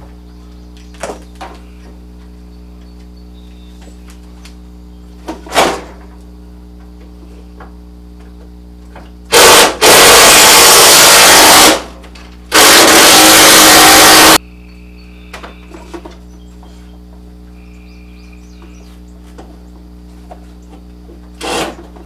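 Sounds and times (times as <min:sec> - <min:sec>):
power tool running: 0:09.3 - 0:14.4, 0:21.3 - 0:22.0.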